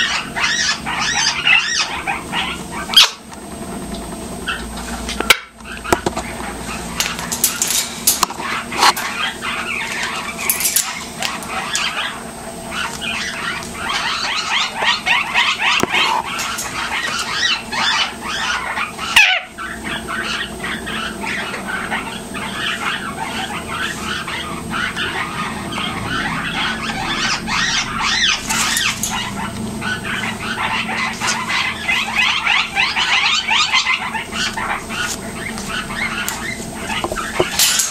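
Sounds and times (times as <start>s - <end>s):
parrot chattering: 0.0s - 3.3s, 4.3s - 37.9s.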